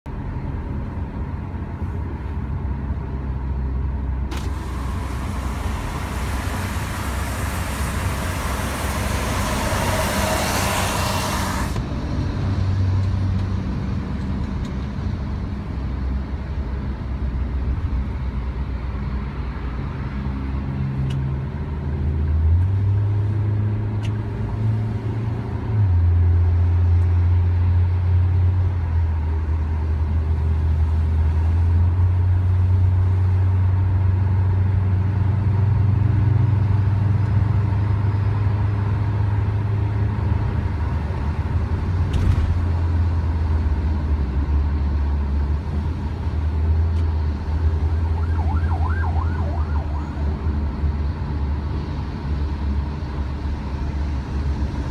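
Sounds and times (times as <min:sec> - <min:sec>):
car cabin road rumble: 0:00.1 - 0:18.7, 0:39.7 - 0:47.9
loud rushing hiss: 0:04.3 - 0:11.8
low drone: 0:04.3 - 0:12.6.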